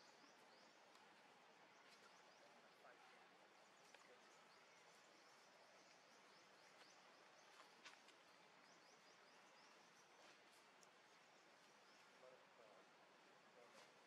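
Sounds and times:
faint ticks: 10.7s - 11.0s.

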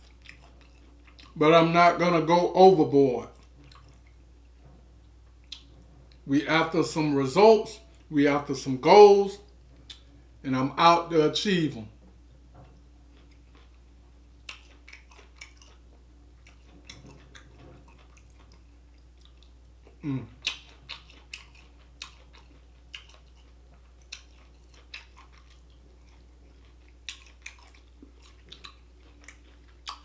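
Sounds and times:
person chewing with lip smacks: 0.0s - 1.4s, 3.3s - 4.2s, 5.4s - 6.3s, 9.8s - 10.1s, 12.7s - 30.0s.

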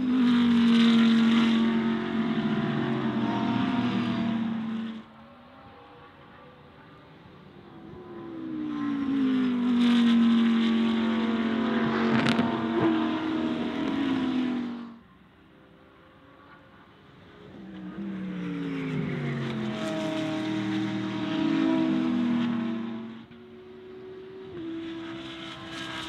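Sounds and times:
second car approaching: 0.0s - 5.2s
race car passing at speed: 0.0s - 6.4s, 7.4s - 26.0s.

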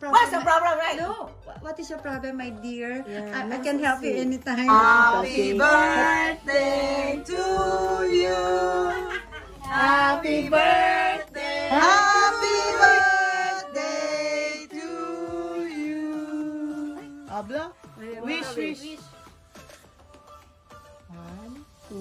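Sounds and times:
voices singing held notes: 4.7s - 17.3s.

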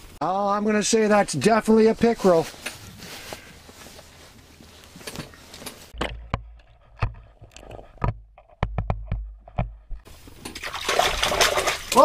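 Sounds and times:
sharp knocks and taps: 6.0s - 10.1s.

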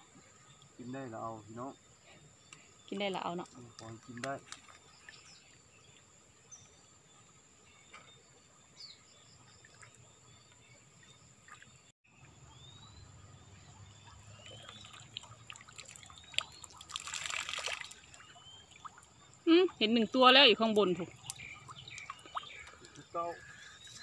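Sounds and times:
water trickling: 2.5s - 6.9s, 9.1s - 24.0s
rising bird chirps: 8.8s - 24.0s.

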